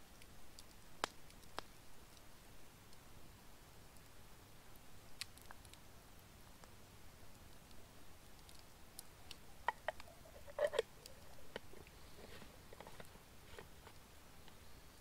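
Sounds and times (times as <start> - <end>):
faint clicks and crackles: 0.0 - 15.0.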